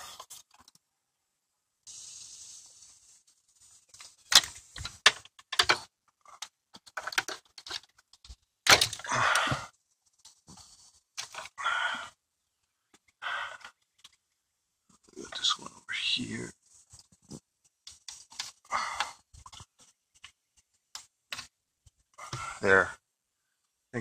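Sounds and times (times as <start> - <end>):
wires rustling and scraping: 0.0 - 0.9, 1.9 - 22.9.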